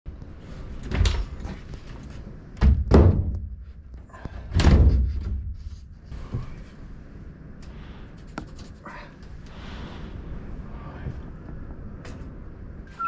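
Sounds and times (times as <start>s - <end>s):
door thudding shut in frame: 2.6s - 3.5s.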